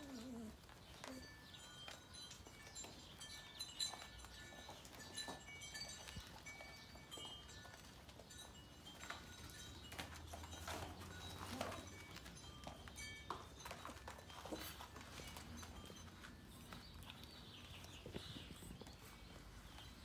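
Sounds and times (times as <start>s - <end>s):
puppy whimper: 0.0s - 1.4s
claws and toys on tile floor: 0.0s - 20.0s.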